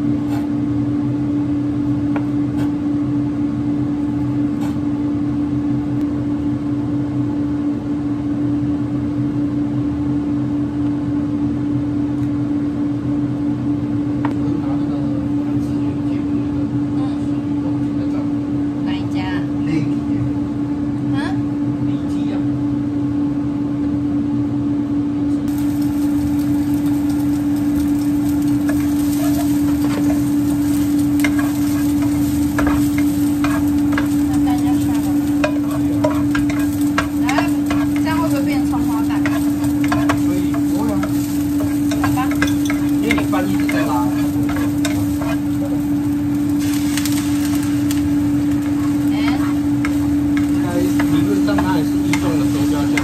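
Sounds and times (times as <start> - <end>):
steady low hum: 0.0 - 53.0
egg sizzling in hot pan: 25.5 - 53.0
onions sizzling: 25.5 - 53.0
spatula scraping frying pan: 26.7 - 53.0.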